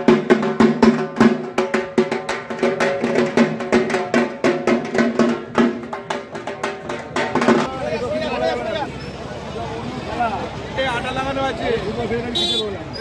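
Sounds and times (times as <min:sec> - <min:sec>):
barrel drums beaten with sticks: 0:00.0 - 0:07.9.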